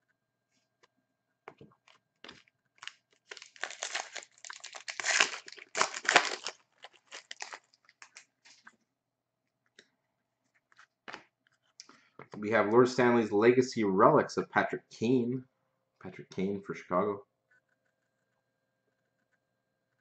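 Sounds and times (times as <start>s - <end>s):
foil wrapper crinkling: 1.8s - 8.7s.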